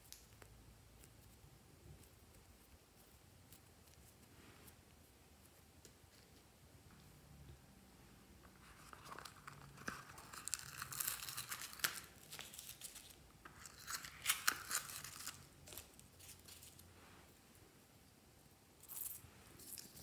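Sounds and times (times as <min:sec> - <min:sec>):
slime toppings crinkling and clicking: 0:09.0 - 0:16.7.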